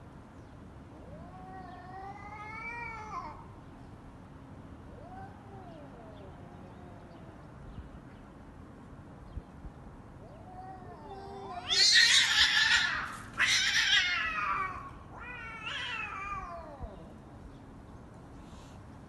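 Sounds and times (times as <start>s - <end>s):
cats screeching: 1.0s - 3.4s, 4.9s - 7.5s, 10.2s - 17.2s
cats yowling: 1.0s - 3.5s, 4.9s - 7.7s, 10.2s - 17.2s.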